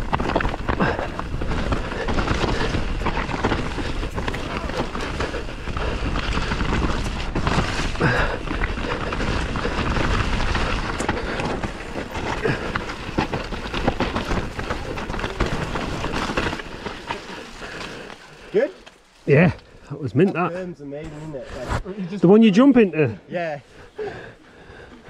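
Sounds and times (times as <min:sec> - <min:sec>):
bike clattering and rattling: 0:00.0 - 0:19.1
bike tyres rushing on dirt: 0:00.0 - 0:19.8, 0:23.5 - 0:25.0.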